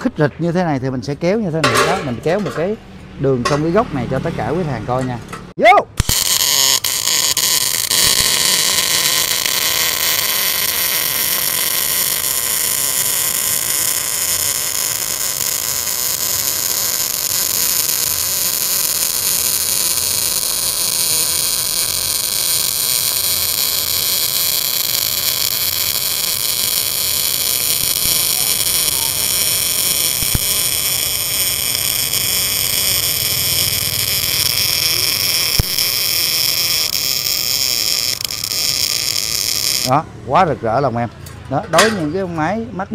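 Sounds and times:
welding arc hiss-crackle: 5.9 - 40.0.

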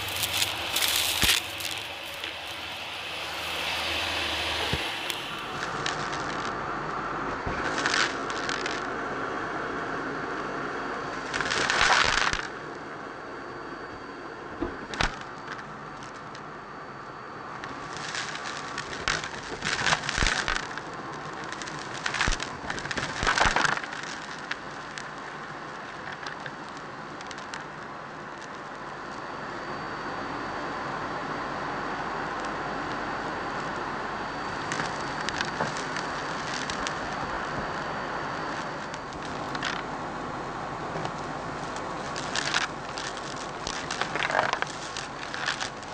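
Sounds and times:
vacuum cleaner running: 0.0 - 7.3
grit rattling up vacuum tube: 42.0 - 45.9.

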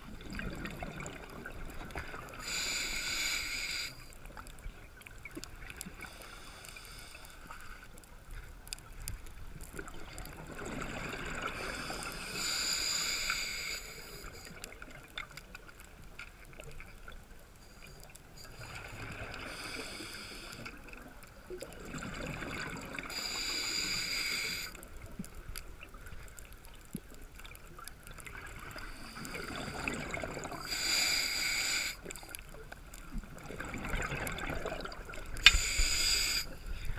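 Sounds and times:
diver breathing through regulator: 2.4 - 4.2, 11.4 - 14.6, 18.4 - 20.8, 23.0 - 24.8, 28.8 - 32.3, 35.4 - 36.9
exhaled bubbles rushing: 33.2 - 35.4.

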